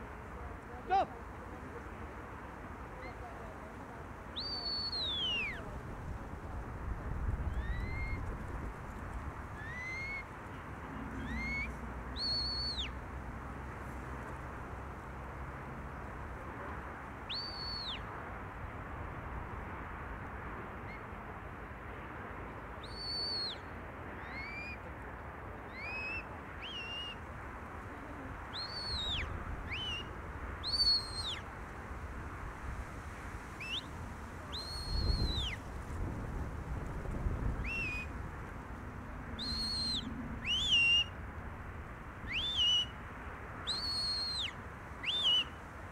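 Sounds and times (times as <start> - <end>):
background noise: 0.0 - 45.9
high shepherd's whistles: 4.4 - 5.6, 11.2 - 12.9, 17.3 - 18.0, 22.8 - 23.6, 28.6 - 31.4, 33.6 - 33.9, 34.5 - 35.6, 37.6 - 38.1, 39.4 - 41.1, 42.3 - 42.9, 43.7 - 45.6.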